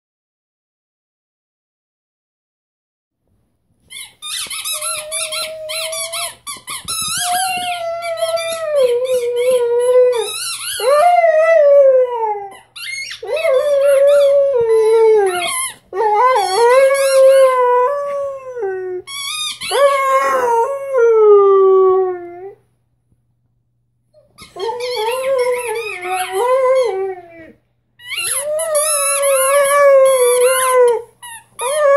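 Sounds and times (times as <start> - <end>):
puppy squeaking: 3.8 - 11.0, 12.5 - 17.6, 19.0 - 20.1, 24.2 - 31.9
puppy howling: 7.2 - 22.6, 24.5 - 27.6, 28.2 - 31.9.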